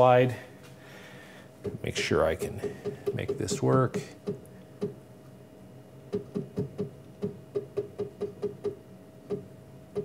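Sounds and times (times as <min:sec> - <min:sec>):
faint steady hum: 0:00.0 - 0:10.0
mill axis drive blips: 0:01.6 - 0:05.3, 0:06.0 - 0:10.0.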